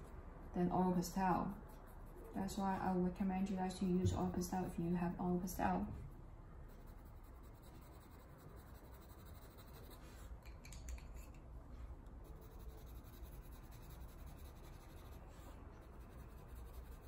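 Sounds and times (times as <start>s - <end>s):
pencil scratching on paper: 6.6s - 10.3s, 12.2s - 17.0s.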